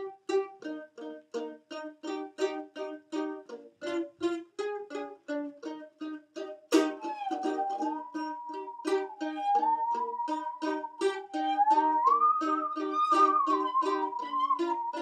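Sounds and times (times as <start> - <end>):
gliding held melody tone: 6.8 - 15.0.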